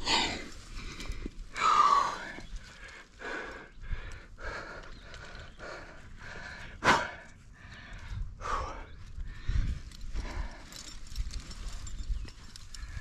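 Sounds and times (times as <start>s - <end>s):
person breathing hard: 0.0s - 11.2s
bumps and rustling on rock: 9.6s - 13.0s.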